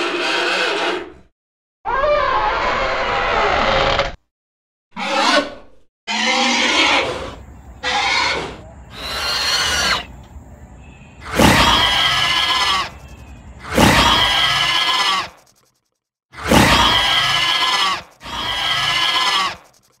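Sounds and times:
dinosaur call: 0:11.2 - 0:13.0
dinosaur roars: 0:13.6 - 0:15.3, 0:16.4 - 0:19.6.

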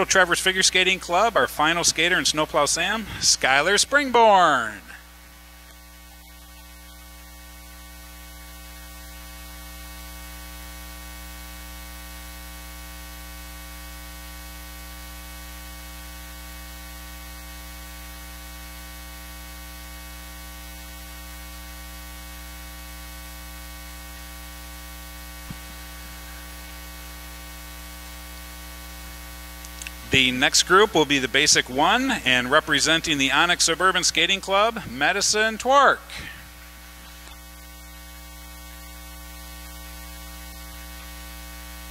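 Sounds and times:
electrical mains hum: 0:00.0 - 0:41.9.

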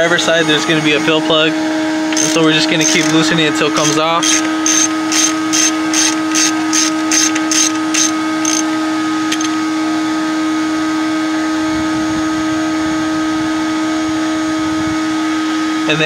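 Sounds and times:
steady hum: 0:00.0 - 0:16.0
ratchet wrench clicking: 0:02.1 - 0:08.7, 0:09.3 - 0:09.5.

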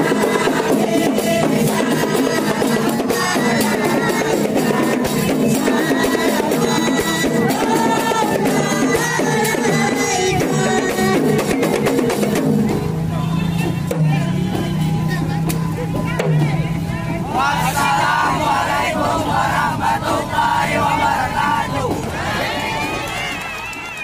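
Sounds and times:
voices singing: 0:00.0 - 0:12.4, 0:13.1 - 0:23.5
frame drums beating: 0:00.0 - 0:16.8.

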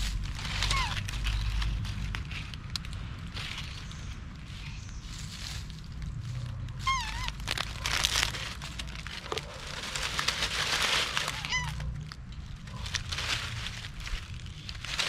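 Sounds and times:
dry leaves rustling and crackling: 0:00.0 - 0:15.0
monkey high-pitched calls: 0:00.6 - 0:01.1, 0:06.9 - 0:07.4.

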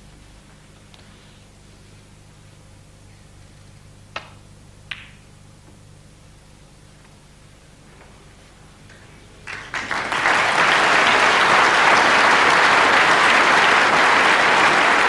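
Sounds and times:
audience applause: 0:09.4 - 0:15.0.

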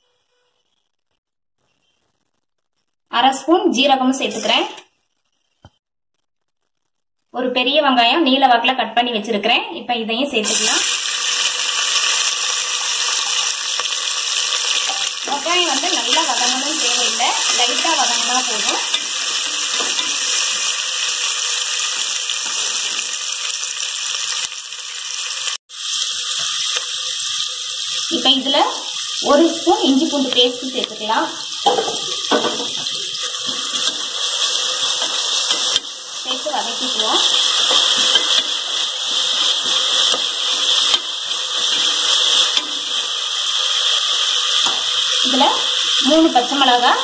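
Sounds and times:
onions sizzling in hot oil: 0:10.4 - 0:47.0.

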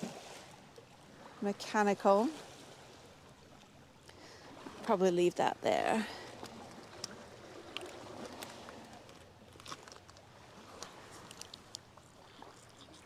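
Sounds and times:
pebbles crunching underfoot: 0:07.7 - 0:11.8.

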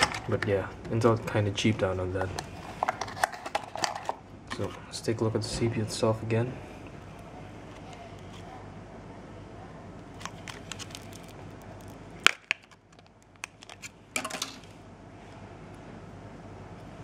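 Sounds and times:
plastic packaging clicks and crackles: 0:10.0 - 0:14.7
plastic snapping: 0:10.2 - 0:14.6.

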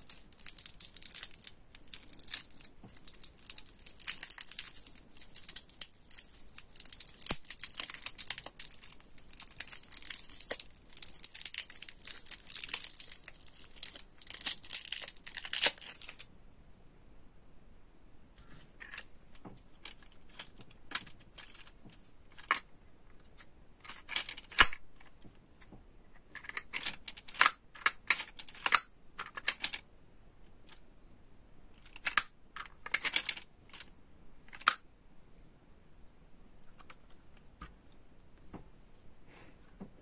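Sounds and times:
plastic toy clicking and clattering: 0:00.0 - 0:16.3, 0:18.8 - 0:22.7, 0:23.3 - 0:25.2, 0:26.3 - 0:29.8, 0:31.8 - 0:33.9, 0:34.5 - 0:34.8.

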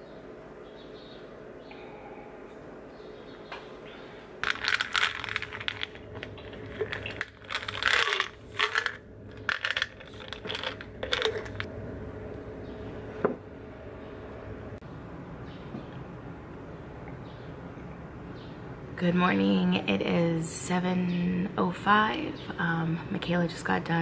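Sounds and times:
pills rattling in plastic bottle: 0:04.4 - 0:11.7.

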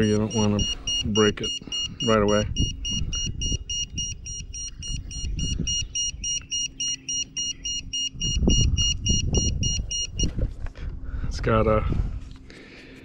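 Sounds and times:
short high-pitched beeps: 0:00.0 - 0:10.3.

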